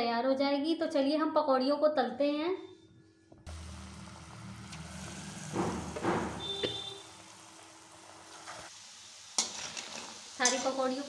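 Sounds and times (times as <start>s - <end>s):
batter sizzling in hot oil: 3.5s - 11.0s.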